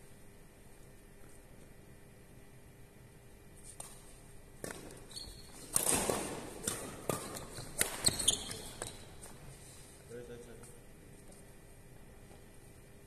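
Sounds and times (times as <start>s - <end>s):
shoe squeaks: 4.9s - 5.8s, 7.3s - 9.4s
racket hitting shuttlecock: 5.7s - 8.9s.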